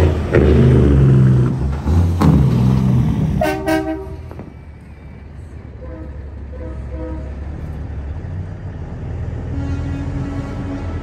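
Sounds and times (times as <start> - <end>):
truck diesel engine rumbling: 0.0 - 11.0
truck horn: 3.3 - 4.4, 5.8 - 7.6, 9.4 - 11.0.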